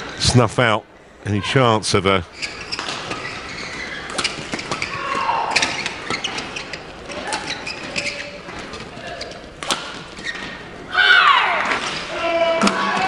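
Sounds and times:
shoes squeaking on court: 2.3s - 10.9s
racket hitting shuttlecock: 2.5s - 10.7s, 11.4s - 13.0s.

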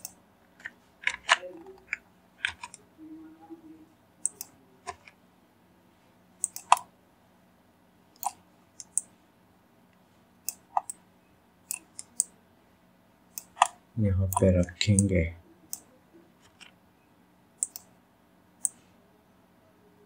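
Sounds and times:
mouse and keyboard clicking: 0.0s - 2.8s, 4.2s - 5.2s, 6.4s - 6.9s, 8.2s - 9.1s, 10.4s - 11.0s, 11.7s - 12.3s, 17.6s - 17.9s.

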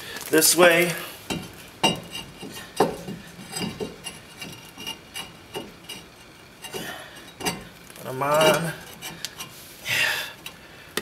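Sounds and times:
brake rotor scraping on hub: 1.3s - 9.7s.

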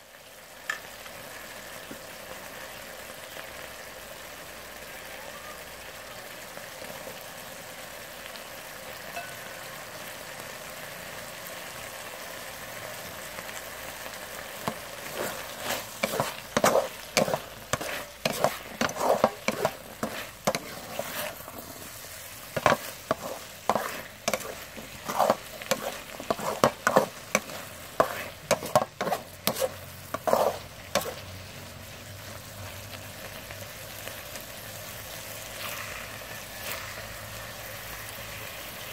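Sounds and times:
food sizzling in a wok: 0.0s - 38.9s
wooden spatula scraping wok: 14.1s - 34.5s, 35.2s - 38.9s.

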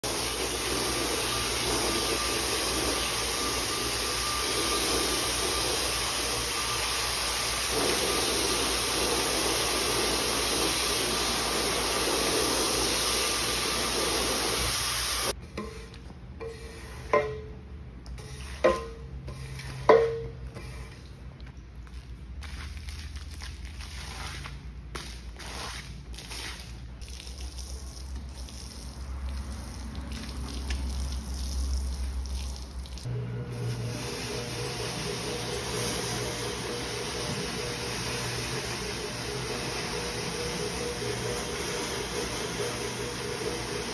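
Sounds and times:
pressure washer spraying: 0.0s - 15.4s, 33.5s - 43.9s
metal squeegee scraping concrete: 15.4s - 17.4s, 18.2s - 21.2s, 22.5s - 30.0s.

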